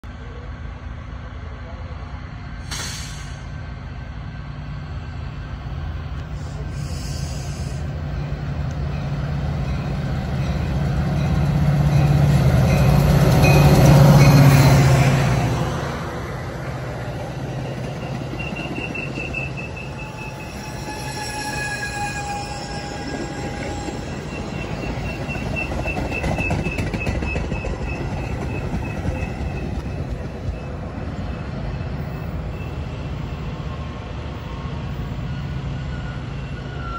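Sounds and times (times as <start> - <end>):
diesel locomotive drone: 0.0 - 36.9
train cars rolling by: 0.1 - 36.9
metallic brake squealing: 17.8 - 29.9.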